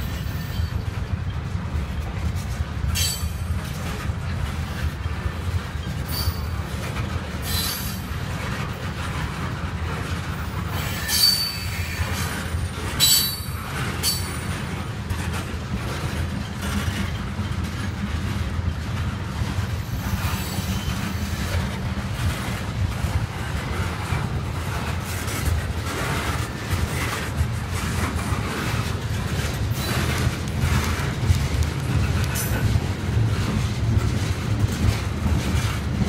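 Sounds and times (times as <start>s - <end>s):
train wheels rumbling on rail: 0.0s - 36.0s
high-pitched wheel squeals: 6.1s - 6.6s, 10.8s - 12.2s, 13.0s - 14.5s.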